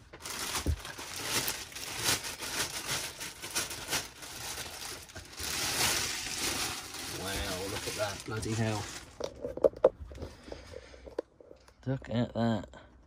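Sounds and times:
plastic bag crinkling: 0.0s - 11.2s.

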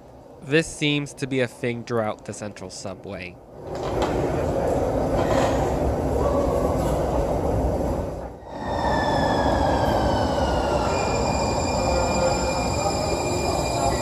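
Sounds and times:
train whine braking: 8.4s - 14.0s.

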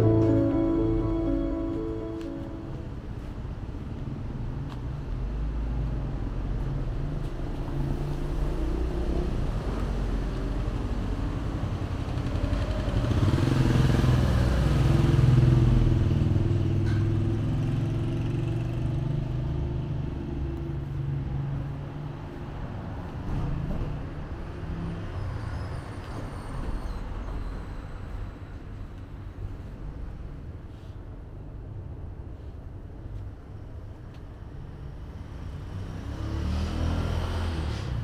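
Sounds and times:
low rumble of traffic: 0.0s - 38.0s
vehicle engine passing: 35.5s - 38.0s.

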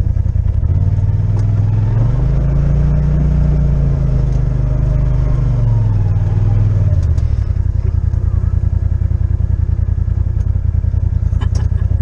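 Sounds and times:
utility vehicle engine under throttle: 0.0s - 12.0s.

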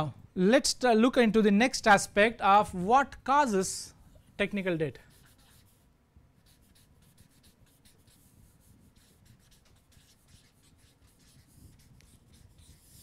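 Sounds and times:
marker scratching on paper: 5.1s - 13.0s.

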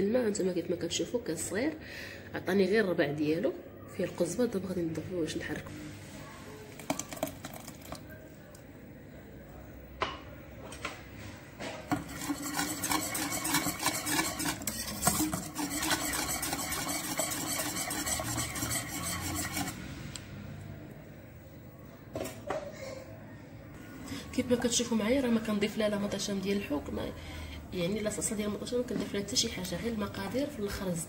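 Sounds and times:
spoon scraping pot: 11.9s - 19.8s.

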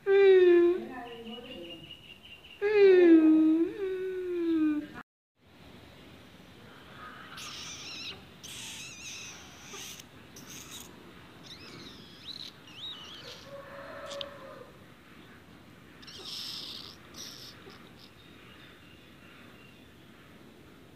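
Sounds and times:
kitten mewing: 7.3s - 13.5s, 16.0s - 18.2s
kittens squeaking: 7.3s - 13.5s, 16.0s - 18.3s.

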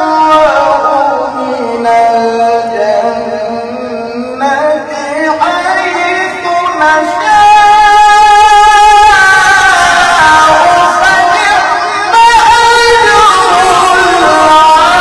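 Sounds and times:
man reciting melodically: 0.0s - 15.0s.

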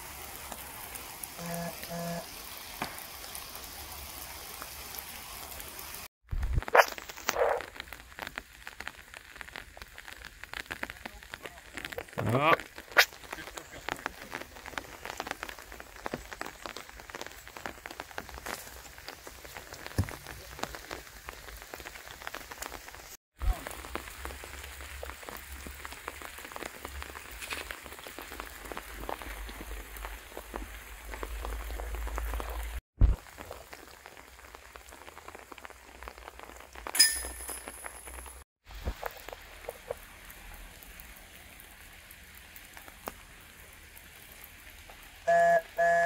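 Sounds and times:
steady rain pattering: 0.0s - 46.0s
short sharp clink: 37.0s - 37.7s.

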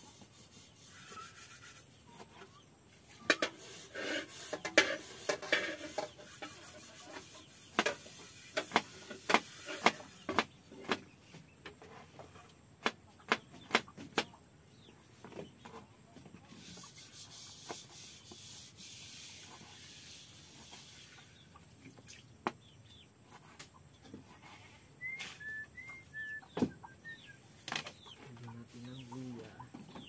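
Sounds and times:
rubbing and scraping: 0.0s - 14.3s, 15.2s - 22.2s, 23.2s - 26.1s, 27.0s - 30.0s
sharp knocks on wood: 12.8s - 14.3s.

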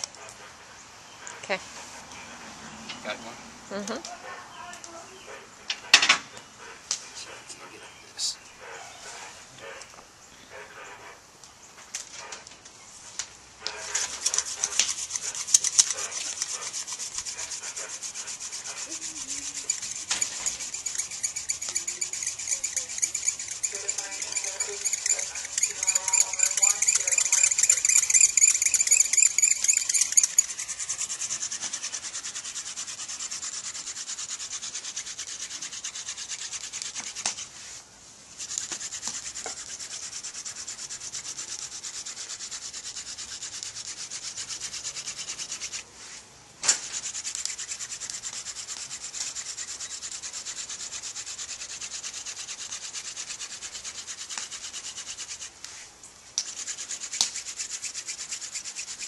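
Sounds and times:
hand drill spindle rubbing hiss: 0.0s - 0.2s, 8.6s - 9.9s, 13.6s - 59.0s.

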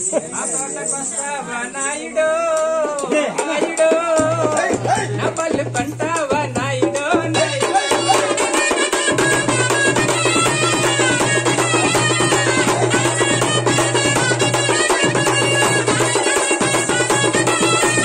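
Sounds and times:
rapid drumming: 2.2s - 18.0s
flute melody: 7.6s - 18.0s.

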